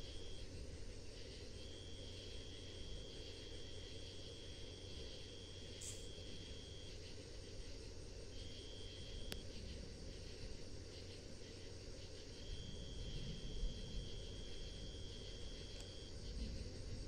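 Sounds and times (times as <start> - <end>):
crickets trilling: 0.0 - 17.0.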